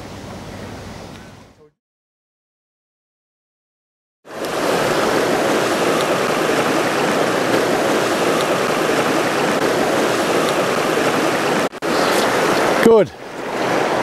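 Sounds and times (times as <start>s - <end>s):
stony river flowing: 4.3s - 14.0s.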